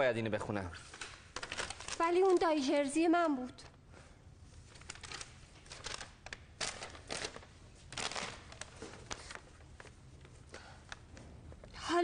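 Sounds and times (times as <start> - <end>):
paper rustling and crackling: 0.8 - 2.6, 4.6 - 11.0.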